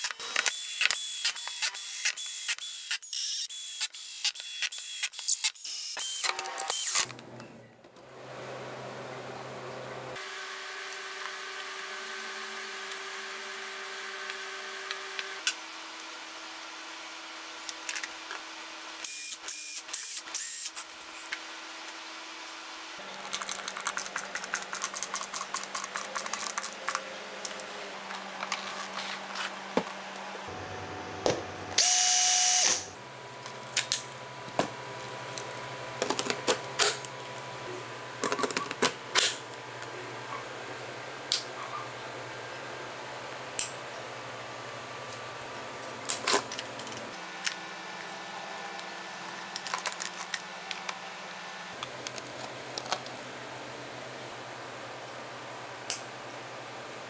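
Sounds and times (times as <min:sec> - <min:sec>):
power screwdriver whirring: 0:00.0 - 0:07.1.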